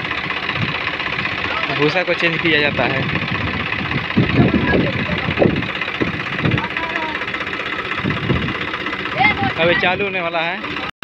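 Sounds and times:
tractor driven straw reaper running: 0.0 - 10.9.

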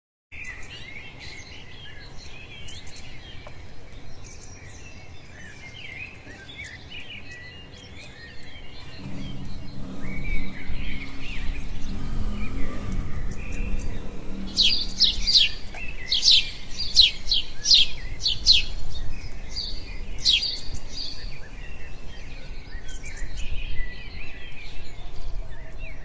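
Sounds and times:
small birds chirping: 0.3 - 26.0
low rumble: 8.5 - 17.0.

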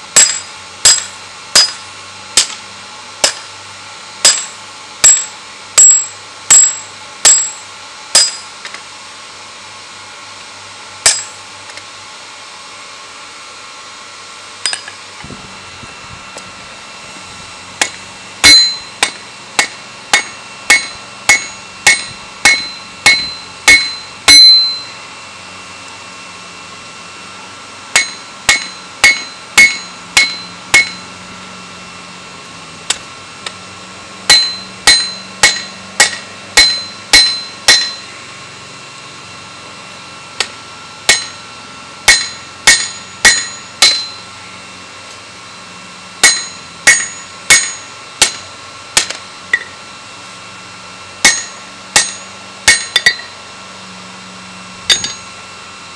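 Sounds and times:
hammer striking steel on anvil: 0.1 - 2.6, 3.2 - 3.6, 4.2 - 8.8, 11.0 - 11.4, 14.6 - 15.0, 17.8 - 25.0, 27.9 - 31.1, 34.3 - 38.2, 40.4 - 44.3, 46.2 - 49.8, 51.2 - 53.4, 54.9 - 55.4.

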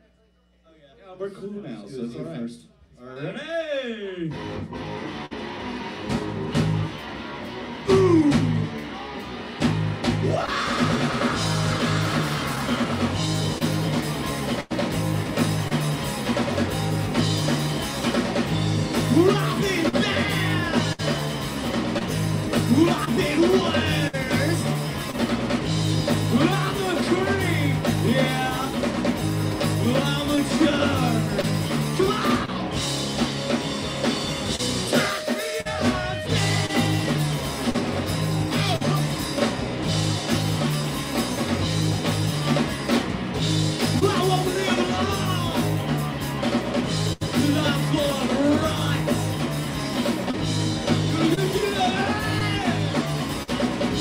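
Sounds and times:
drum kit: 4.3 - 54.0
electric guitars: 4.3 - 54.0
person singing: 7.9 - 8.7, 19.1 - 21.0, 22.7 - 24.7, 26.3 - 28.9, 29.8 - 32.7, 34.8 - 37.4, 51.1 - 53.0.

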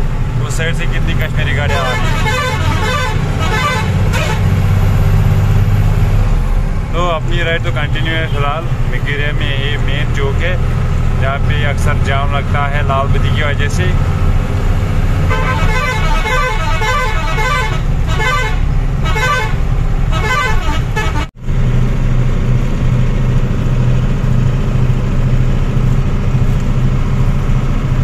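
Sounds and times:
road noise: 0.0 - 28.0
traffic noise: 0.0 - 28.0
truck engine drone: 0.0 - 28.0
warbling vehicle horn blasts: 1.6 - 4.5, 15.3 - 21.3.

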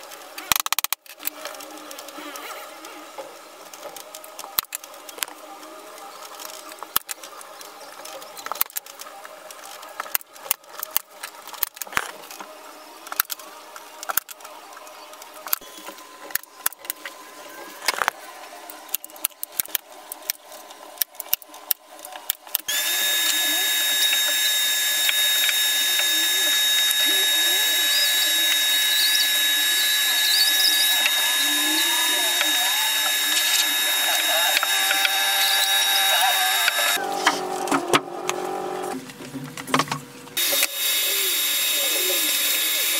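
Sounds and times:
vacuum cleaner running: 22.7 - 39.0, 40.4 - 42.9.

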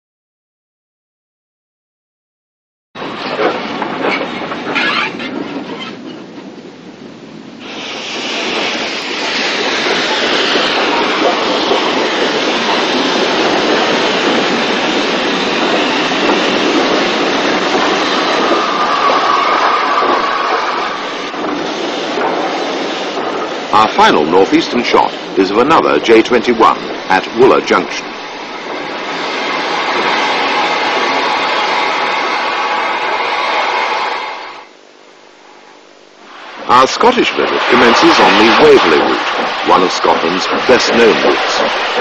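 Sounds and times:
train rumbling past: 3.0 - 42.0
train wheels clicking: 7.6 - 34.7, 36.4 - 42.0.

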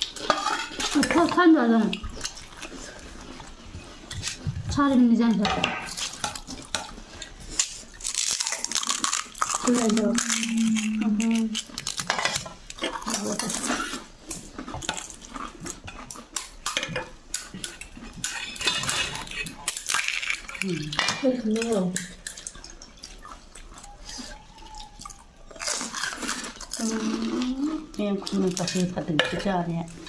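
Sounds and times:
steel spoon clinking on plates: 16.6 - 20.4.

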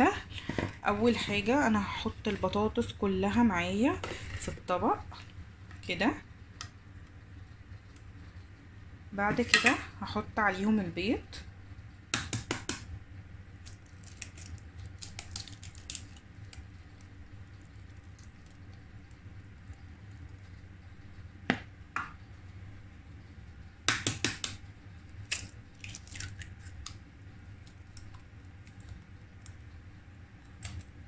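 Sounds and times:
eggs cracking taps and clicks: 12.1 - 12.9, 13.6 - 20.3, 23.8 - 24.6, 25.2 - 29.7, 30.4 - 31.0.

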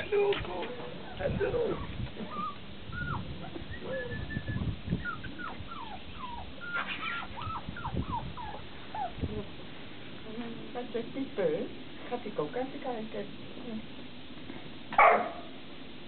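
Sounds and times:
puppies whimpering: 1.0 - 9.2.

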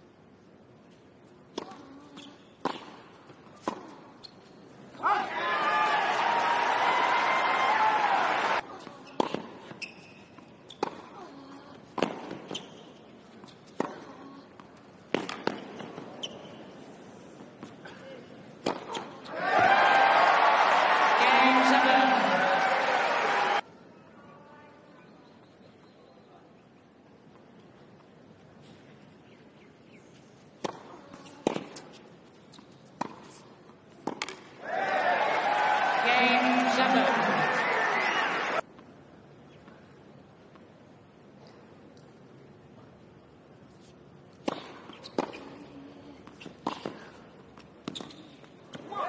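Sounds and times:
tennis ball bouncing: 1.5 - 4.2, 9.1 - 9.8, 10.4 - 11.2, 11.8 - 12.7, 13.4 - 16.1, 18.5 - 19.7, 30.6 - 34.5, 44.3 - 45.6, 46.2 - 48.9
hushed stadium crowd: 5.0 - 8.6, 19.3 - 23.6, 34.6 - 38.6
rackets striking tennis ball: 15.1 - 16.0, 18.6 - 19.7, 34.0 - 34.5.

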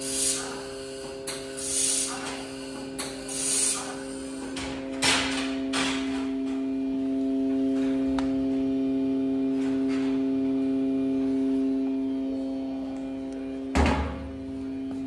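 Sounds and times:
laser welding machine hum: 0.0 - 15.0.

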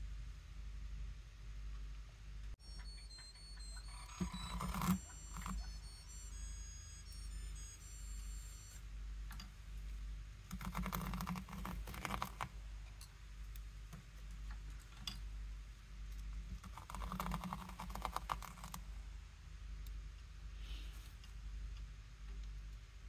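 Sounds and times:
tweezers clicking and scratching: 10.5 - 12.5.

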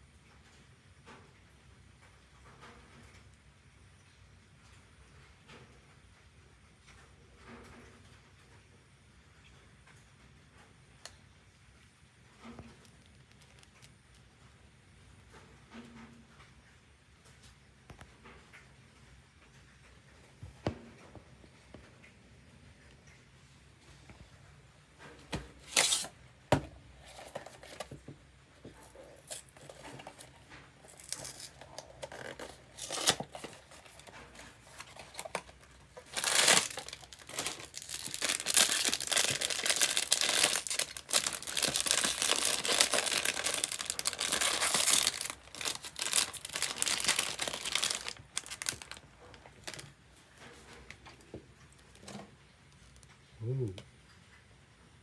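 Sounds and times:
foil bag crinkling and tearing: 12.6 - 14.2, 25.5 - 26.2, 26.9 - 28.0, 28.7 - 49.9
cardboard box rustling: 25.5 - 28.1, 28.7 - 49.8.

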